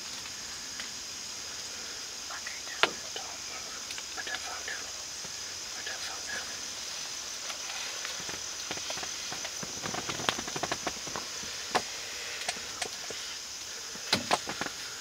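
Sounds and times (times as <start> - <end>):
high-pitched insect chorus: 0.0 - 15.0
sharp clicks and crackles: 7.4 - 13.2.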